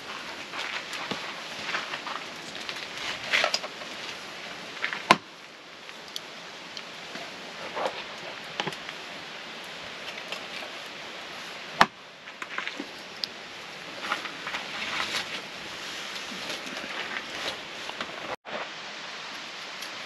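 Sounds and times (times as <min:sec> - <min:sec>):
small clicks and rustles: 0:00.0 - 0:05.1
steady background hiss: 0:00.0 - 0:20.0.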